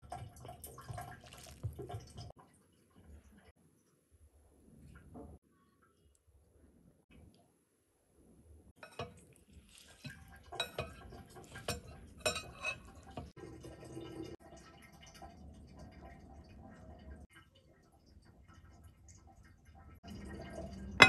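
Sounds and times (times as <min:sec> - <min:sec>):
chopsticks handling food: 0:08.8 - 0:12.8
metal spoon scraping a bowl: 0:08.8 - 0:13.3.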